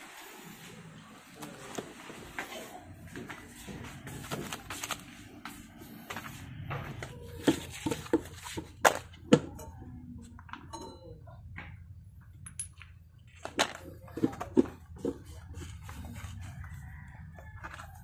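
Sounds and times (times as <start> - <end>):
metal parts clicking on concrete: 12.4 - 13.8.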